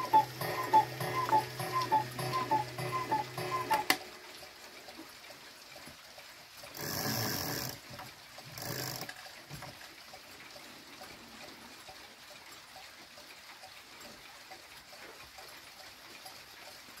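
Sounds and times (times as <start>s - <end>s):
clock ticking: 0.0s - 5.5s.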